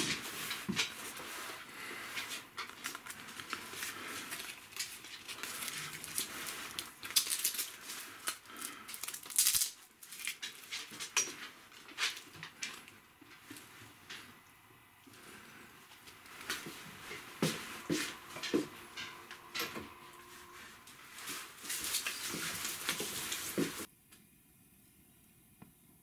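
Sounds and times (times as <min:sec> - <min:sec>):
wrapper rustling: 0:00.0 - 0:13.0, 0:20.4 - 0:23.9.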